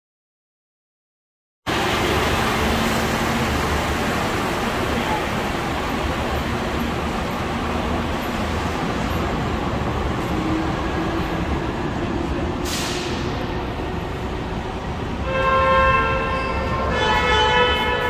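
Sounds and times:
tram rumbling: 0:01.7 - 0:18.0
air hiss: 0:12.6 - 0:13.2.

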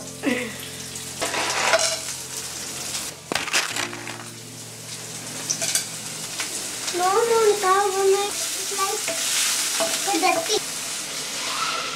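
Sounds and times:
onions sizzling in hot oil: 0:00.0 - 0:11.9
vegetables dropped into pan crackling: 0:03.1 - 0:04.5.

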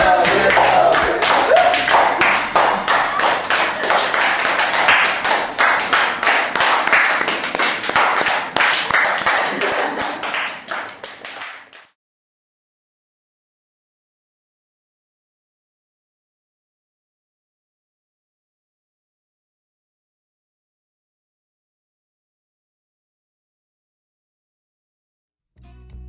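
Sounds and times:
people clapping: 0:00.0 - 0:12.0.

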